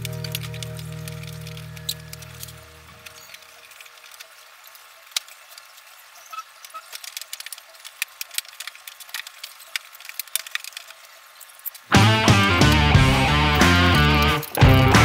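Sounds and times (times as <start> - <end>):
hand tools clicking and clinking: 0.0 - 5.8, 6.6 - 15.0.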